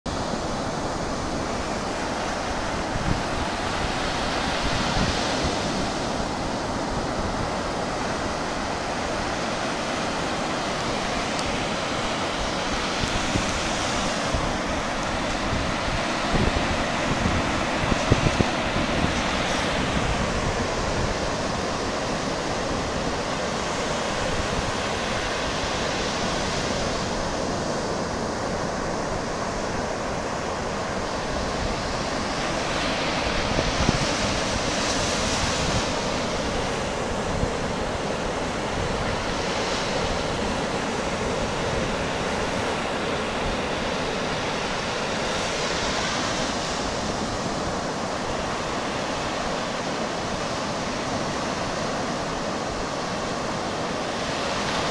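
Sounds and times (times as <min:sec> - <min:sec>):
ocean surf breaking on beach: 0:00.1 - 0:54.9
wind rumbling on microphone: 0:00.1 - 0:54.9.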